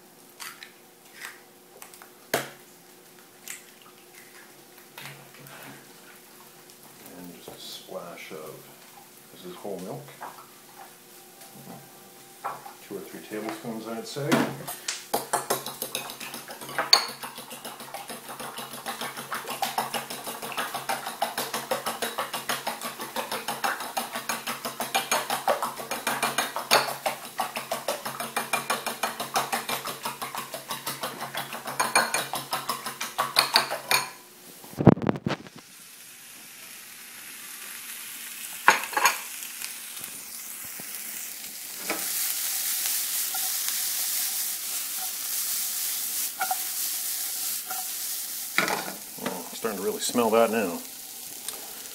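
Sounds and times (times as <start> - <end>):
vegetables sizzling in a frying pan: 4.1 - 51.9.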